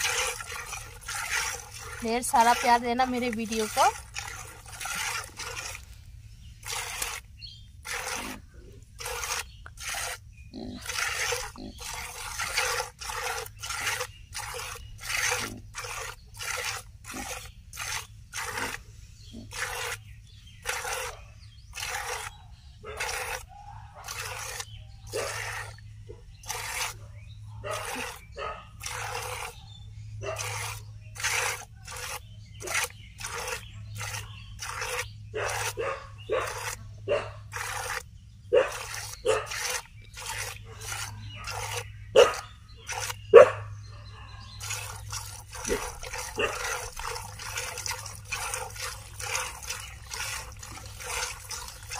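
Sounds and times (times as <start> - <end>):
milk squirting into plastic bucket: 0.0 - 18.8, 19.5 - 22.4, 24.0 - 25.8, 27.8 - 29.6, 30.4 - 35.8, 38.7 - 41.9, 42.8 - 43.2, 44.6 - 51.9.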